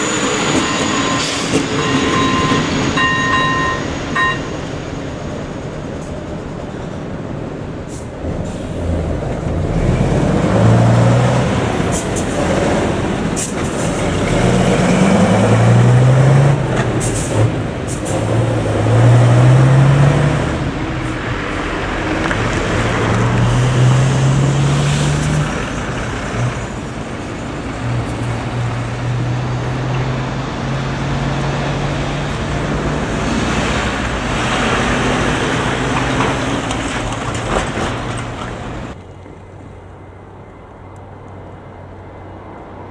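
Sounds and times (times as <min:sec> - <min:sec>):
hum of tyre and engine noise: 0:00.0 - 0:42.9
vehicles accelerating past: 0:08.3 - 0:40.2.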